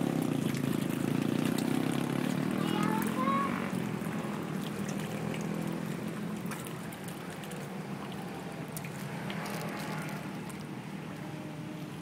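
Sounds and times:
fish splashing and slurping: 0:00.0 - 0:12.0.

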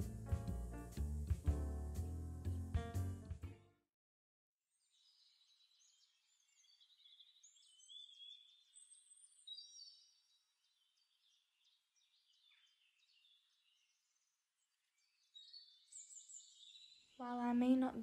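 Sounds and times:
small birds chirping and trilling: 0:04.8 - 0:18.0.

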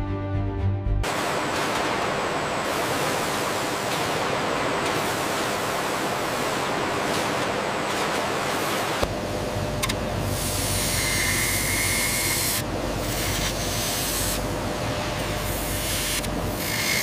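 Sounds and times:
music: 0:00.0 - 0:01.1
steady rushing noise: 0:01.0 - 0:09.8.

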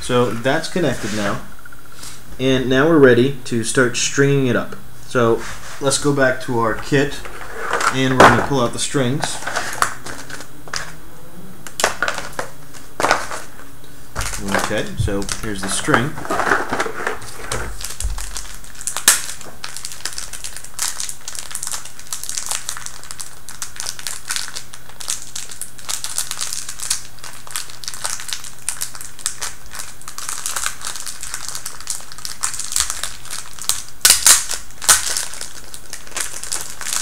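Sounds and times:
plastic bag crinkling: 0:06.7 - 0:10.9, 0:11.8 - 0:13.6, 0:14.2 - 0:37.0.

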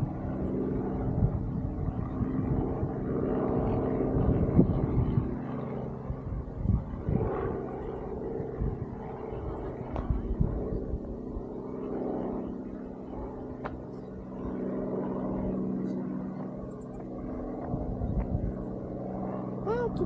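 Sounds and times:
wind rumbling on microphone: 0:00.0 - 0:12.5, 0:13.1 - 0:20.0
engine hum: 0:00.0 - 0:20.0.

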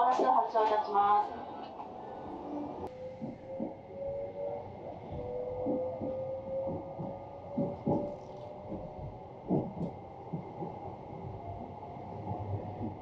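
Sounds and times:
electric train motor whine: 0:02.2 - 0:13.0.

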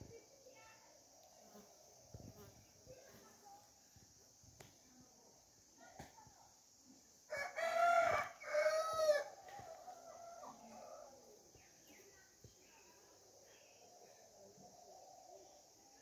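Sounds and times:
rooster crowing: 0:07.3 - 0:11.2.

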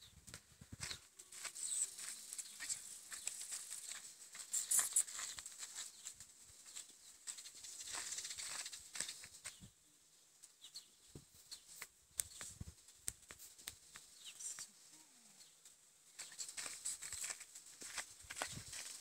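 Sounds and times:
footsteps on gravel: 0:00.8 - 0:06.1, 0:16.2 - 0:19.0.

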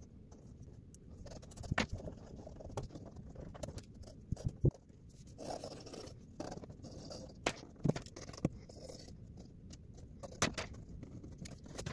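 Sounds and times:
pencil scratching on paper: 0:01.1 - 0:07.4.

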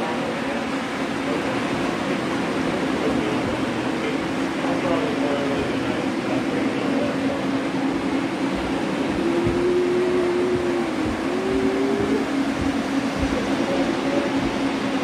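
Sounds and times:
model trains running: 0:00.0 - 0:15.0
whining tone: 0:07.4 - 0:15.0.

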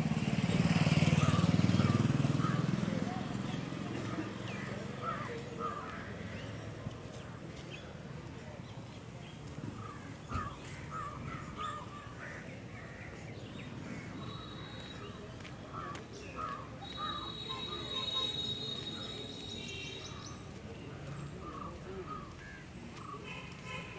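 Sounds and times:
birds giving harsh calls: 0:15.8 - 0:20.5.

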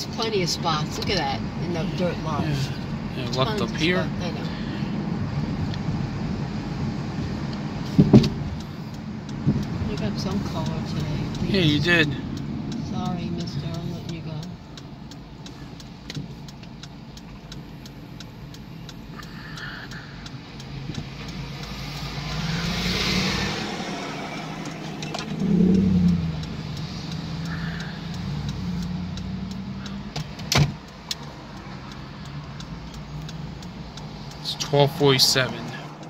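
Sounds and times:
car engine and road hum: 0:00.0 - 0:36.0
vehicle passing: 0:18.0 - 0:36.0
low rumble: 0:21.4 - 0:30.1.

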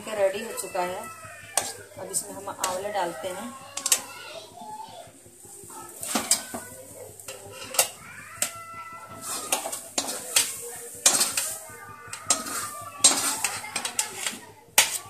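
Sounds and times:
metal ladle scraping iron pot: 0:01.6 - 0:04.1, 0:09.1 - 0:15.0.

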